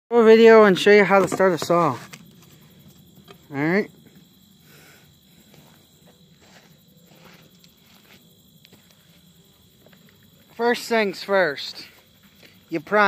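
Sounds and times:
insects calling: 0.1s - 13.0s
soft footsteps: 5.3s - 12.7s.

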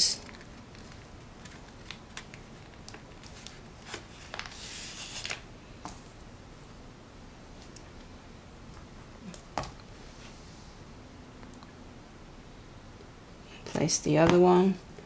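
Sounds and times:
paper rubbing rustle: 0.2s - 5.4s.

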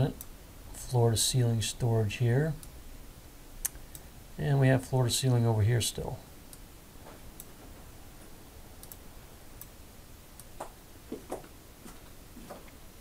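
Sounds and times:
low hiss of room tone: 0.0s - 13.0s
computer mouse clicks: 8.8s - 9.0s.

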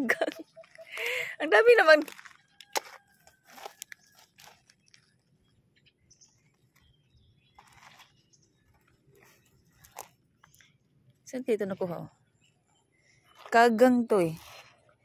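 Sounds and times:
rustles and scrapes on gravel: 1.6s - 10.6s, 13.2s - 15.0s.

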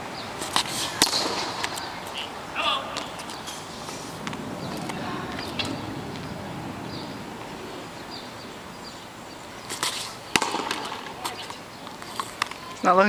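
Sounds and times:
ball smacking: 0.5s - 1.9s, 9.7s - 12.6s.

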